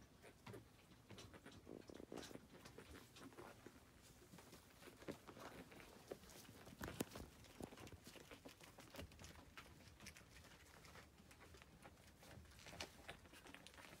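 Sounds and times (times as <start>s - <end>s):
faint clicks and taps: 0.0s - 14.0s.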